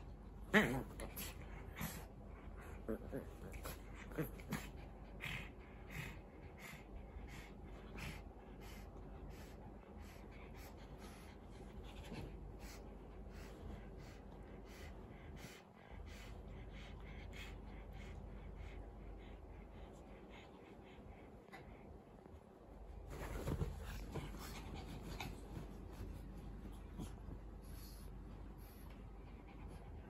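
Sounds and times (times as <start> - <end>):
dogs breathing and snuffling: 1.0 - 30.0
bed covers rustling: 22.9 - 27.7.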